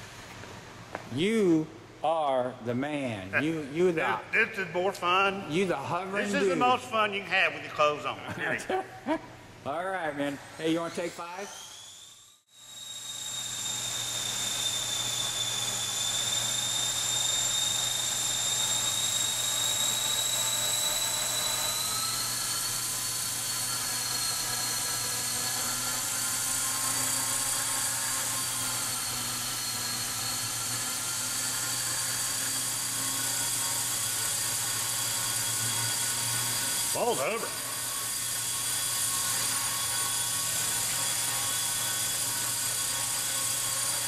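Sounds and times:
rc helicopter motor whine: 10.6s - 44.0s.

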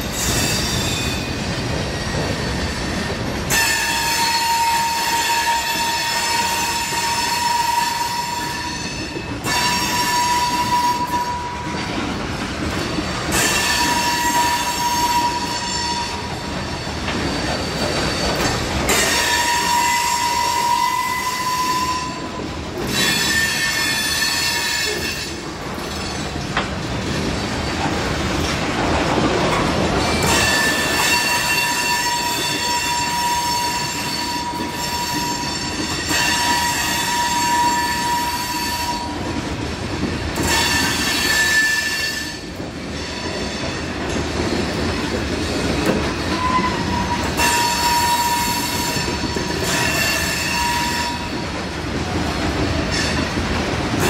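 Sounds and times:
train wheels rumbling on rail: 0.0s - 54.0s
high ringing wheel squeal: 0.1s - 11.8s, 13.3s - 25.4s, 30.1s - 39.2s, 40.4s - 44.0s, 46.4s - 51.3s.

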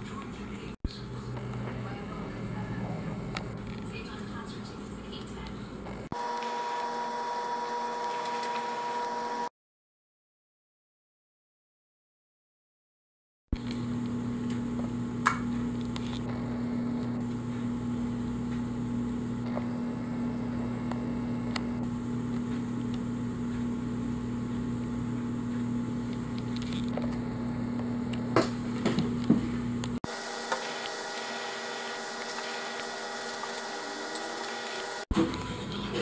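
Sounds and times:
steady low hum: 13.6s - 35.1s.

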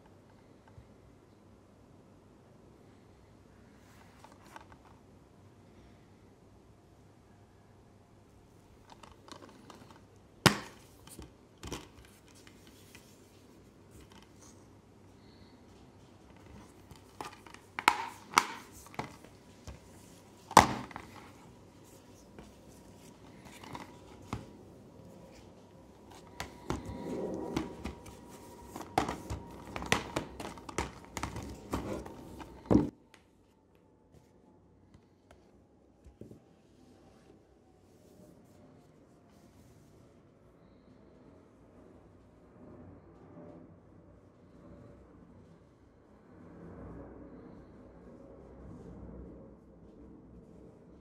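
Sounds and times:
plastic cases clacking: 8.9s - 12.6s, 16.3s - 21.4s, 22.4s - 24.6s, 26.0s - 32.9s
plastic cases rubbing and scraping: 8.9s - 15.4s, 16.2s - 32.9s.

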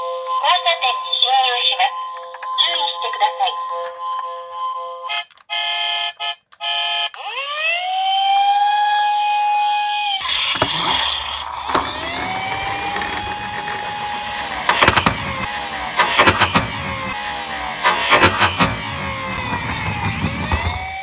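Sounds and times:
toy siren wailing: 0.0s - 15.7s
plastic toy clicks and knocks: 5.1s - 5.6s, 10.3s - 17.2s.

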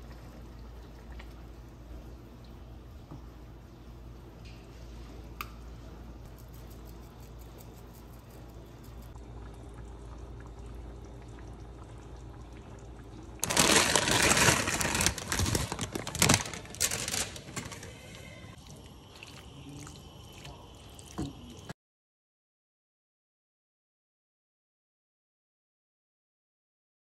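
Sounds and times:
water splashing and bubbling: 0.0s - 2.7s, 9.1s - 17.2s, 18.6s - 21.7s
low steady hum: 0.0s - 21.7s.

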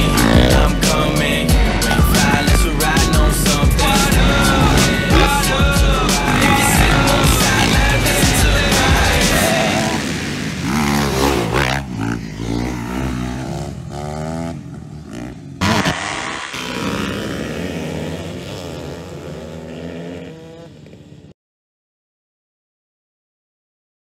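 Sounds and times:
dirt bike engines revving: 0.0s - 21.3s.

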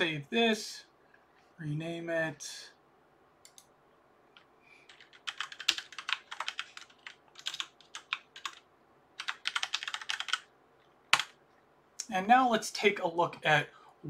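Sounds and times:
typing on a computer keyboard: 3.4s - 3.7s, 4.4s - 8.6s, 9.2s - 10.5s, 11.1s - 11.4s.

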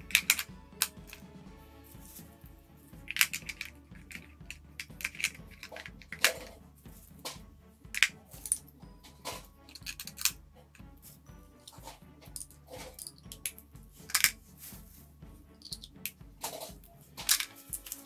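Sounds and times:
plastic toys clicking and clattering: 0.1s - 1.0s, 3.1s - 6.6s, 8.0s - 10.4s, 11.6s - 14.4s, 15.6s - 18.0s.

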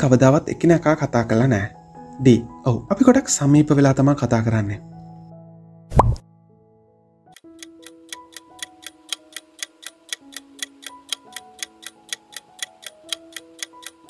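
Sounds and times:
clock ticking: 7.4s - 14.0s.

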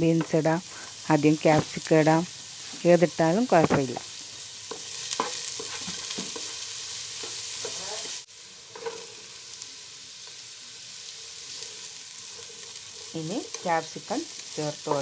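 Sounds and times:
vegetables sizzling in oil: 0.0s - 15.0s
spatula scraping pan: 4.7s - 8.1s.

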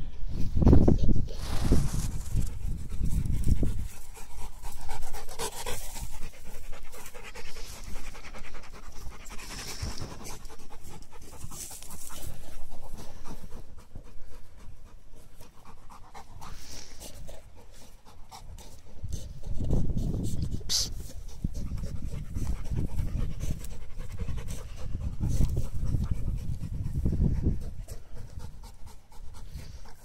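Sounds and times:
dog panting: 2.5s - 30.0s.

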